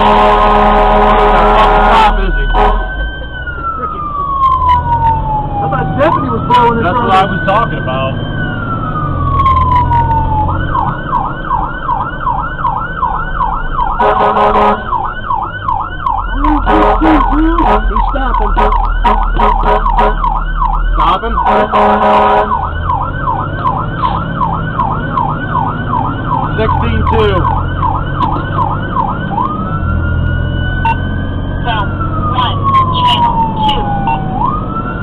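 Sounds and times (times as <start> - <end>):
horn blasts: 0.0 - 3.0, 14.0 - 15.0, 16.4 - 20.3, 21.4 - 22.6
fire engine siren: 0.0 - 35.0
truck engine running: 0.0 - 35.0.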